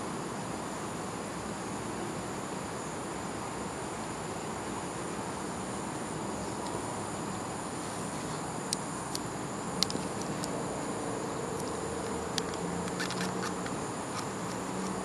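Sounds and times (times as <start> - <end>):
insects droning: 0.0 - 15.0
sharp clicks: 8.7 - 10.6, 11.6 - 15.0.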